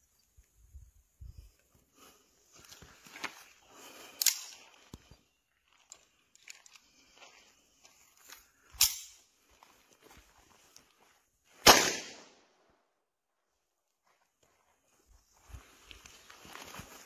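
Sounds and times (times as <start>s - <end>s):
pistol being loaded clicks: 4.2s - 4.6s, 8.8s - 9.2s
pistol shot: 11.6s - 12.5s.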